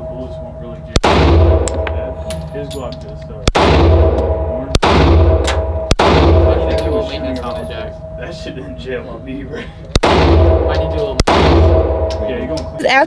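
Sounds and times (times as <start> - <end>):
handgun shots echoing: 1.0 - 2.1, 3.4 - 7.6, 10.0 - 12.3.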